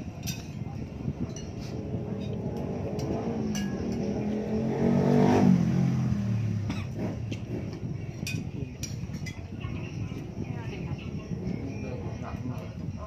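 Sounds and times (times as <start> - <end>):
cutlery clinking on plates: 0.1 - 0.7, 1.3 - 4.2, 8.2 - 9.5
vehicle engine passing by: 1.7 - 7.8.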